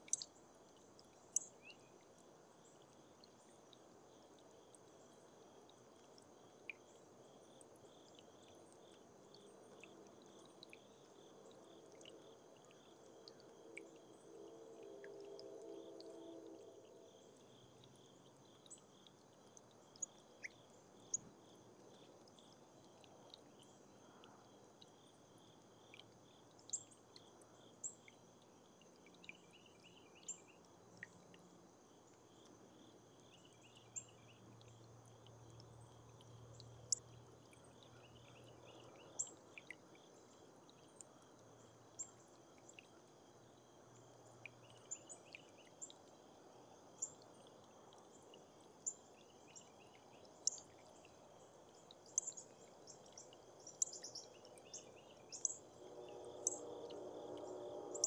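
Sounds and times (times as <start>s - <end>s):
faint chirping: 6.7s - 28.2s.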